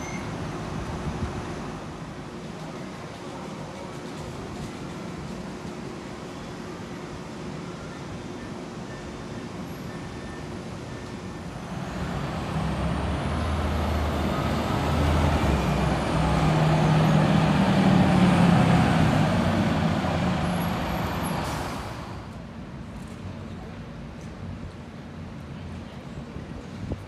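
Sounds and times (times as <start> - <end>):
bus driving past: 9.6 - 22.7.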